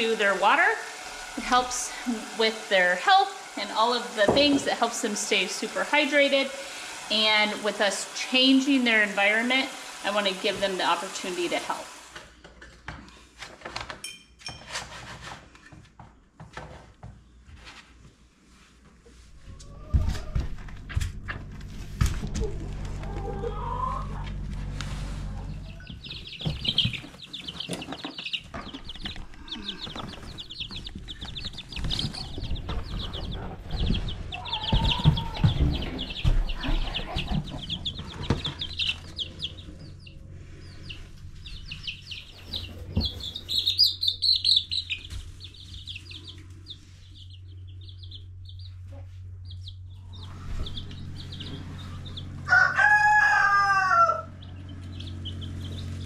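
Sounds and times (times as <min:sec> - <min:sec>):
chicks peeping: 0:19.5 - 0:56.0
low falling bird call: 0:22.2 - 0:48.2.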